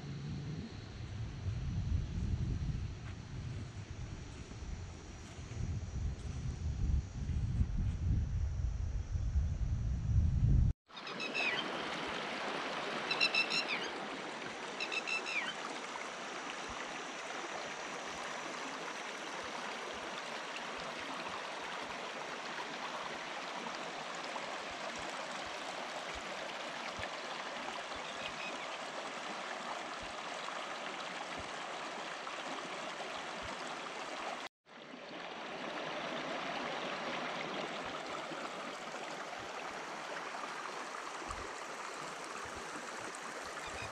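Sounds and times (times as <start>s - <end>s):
stream water over rocks: 10.9s - 43.9s.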